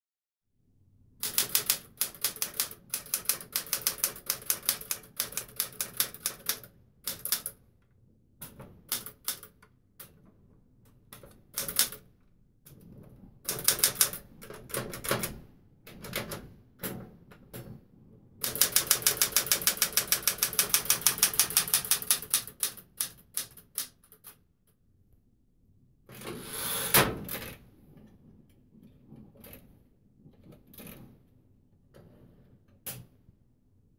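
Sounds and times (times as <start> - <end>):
manual typewriter key strikes: 1.2 - 7.6, 13.5 - 15.3, 18.4 - 24.3.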